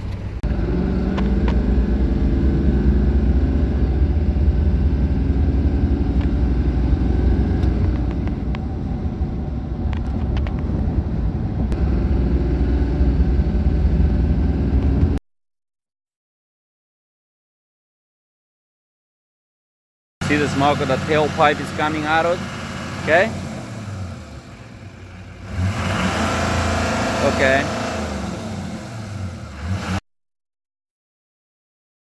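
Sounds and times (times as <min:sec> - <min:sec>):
diesel engine at full throttle: 0:00.0 - 0:15.2, 0:20.2 - 0:30.0.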